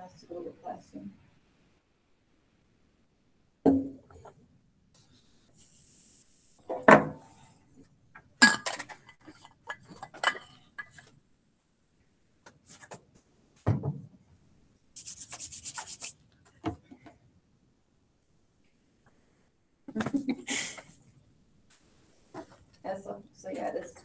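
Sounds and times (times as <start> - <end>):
rapid rasping rub: 15.0 - 16.2.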